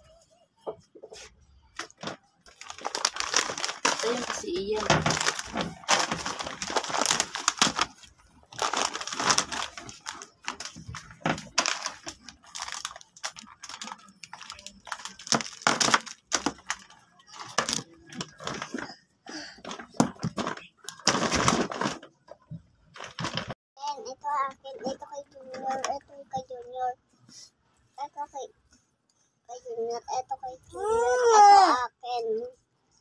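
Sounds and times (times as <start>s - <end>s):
plastic wrappers crinkling: 1.8s - 18.9s, 19.7s - 22.1s, 22.9s - 23.6s.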